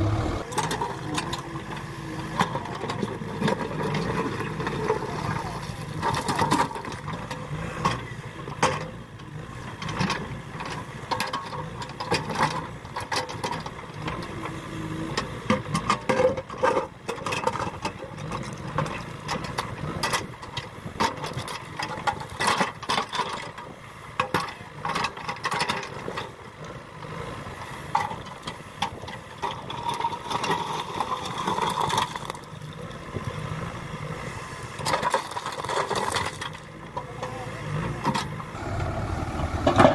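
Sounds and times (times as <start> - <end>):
diesel engine running under load: 0.0 - 39.9
bucket scraping through rock: 29.6 - 32.5, 35.0 - 36.6.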